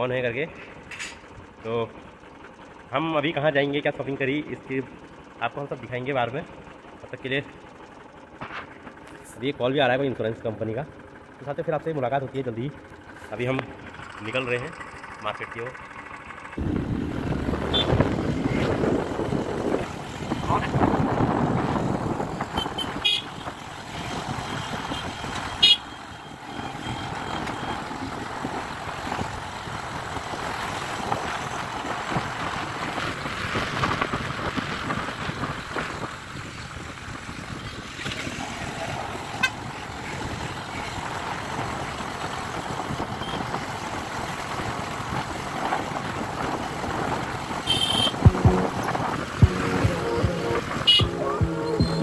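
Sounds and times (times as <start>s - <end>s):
road and wind noise: 0.0s - 52.0s
vehicle horn toots: 17.6s - 18.1s, 22.5s - 23.5s, 24.6s - 27.7s, 47.6s - 52.0s.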